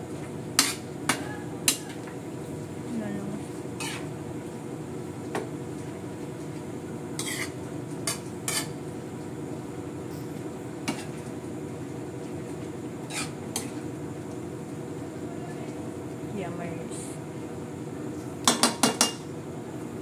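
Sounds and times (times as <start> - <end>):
metal spatula scraping wok: 3.8 - 4.1, 7.2 - 7.6, 8.5 - 8.8, 13.0 - 13.7.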